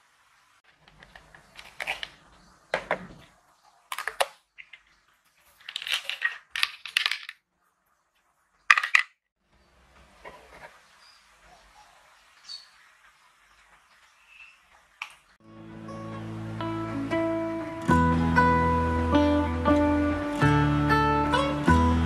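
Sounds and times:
plastic bottles and tablets clattering: 0:00.7 - 0:03.3, 0:03.9 - 0:07.4, 0:08.7 - 0:09.2.

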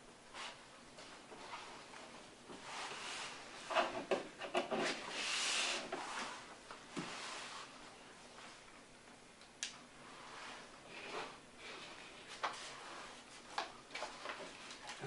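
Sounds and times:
paper rustling and shuffling: 0:11.2 - 0:15.0.

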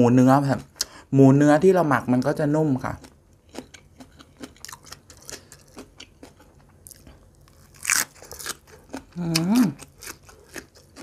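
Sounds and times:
wet eating sounds: 0:02.8 - 0:11.0.

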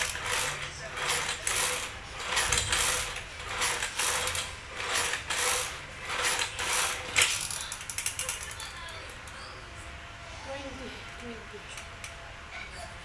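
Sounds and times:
exercise machine rattling and clicking: 0:00.0 - 0:09.0.

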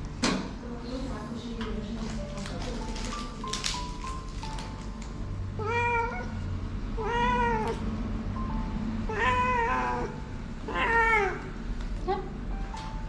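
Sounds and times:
cat meowing: 0:05.6 - 0:06.4, 0:07.0 - 0:07.8, 0:09.1 - 0:11.6.

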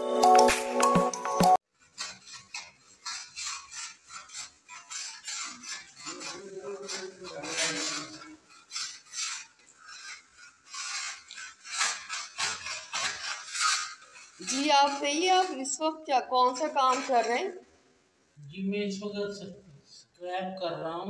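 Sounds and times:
music jingle: 0:00.0 - 0:01.6
paint scraper scraping wall: 0:01.7 - 0:17.7.

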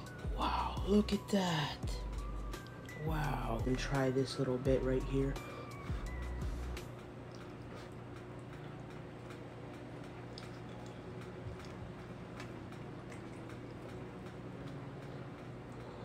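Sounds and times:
steady low hum: 0:00.0 - 0:16.0
mouth clicks and smacks chewing: 0:07.2 - 0:09.4, 0:10.0 - 0:14.0.

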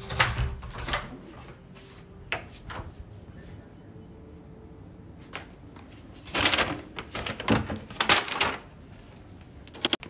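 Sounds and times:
paper bags rustling: 0:06.0 - 0:09.1.

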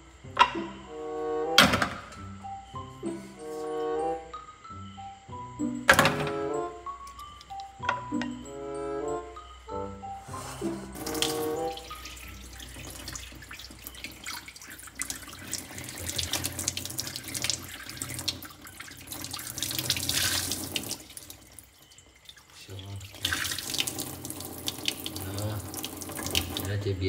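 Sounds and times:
background music: 0:00.0 - 0:14.3, 0:23.8 - 0:27.0
tap water splashing in sink: 0:11.0 - 0:26.8.

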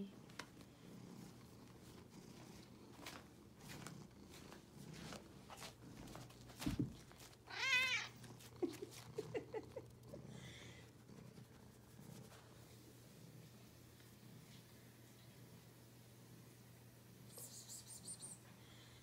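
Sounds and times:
cat meowing: 0:07.5 - 0:08.2.

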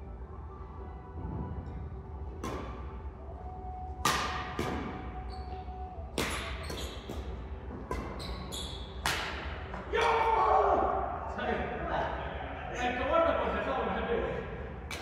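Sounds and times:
rackets hitting shuttlecock: 0:02.3 - 0:02.9, 0:04.0 - 0:05.1, 0:06.1 - 0:10.2.

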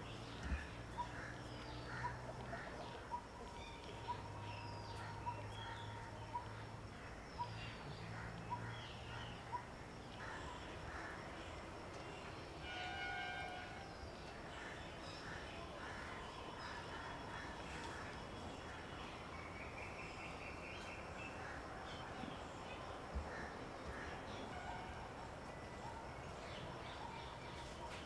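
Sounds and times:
held horn-like note: 0:12.6 - 0:13.9.

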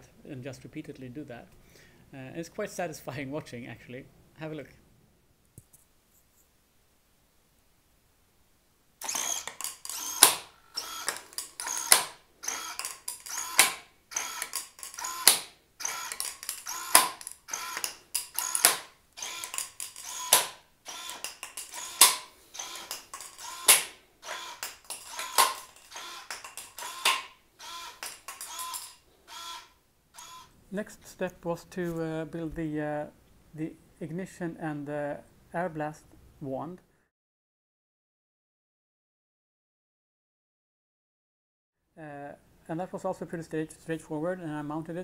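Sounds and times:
servo whirring: 0:09.0 - 0:30.5.

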